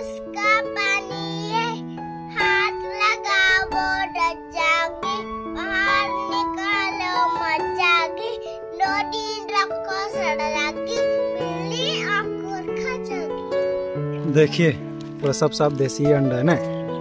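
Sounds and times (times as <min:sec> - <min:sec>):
background music of held notes: 0:00.0 - 0:17.0.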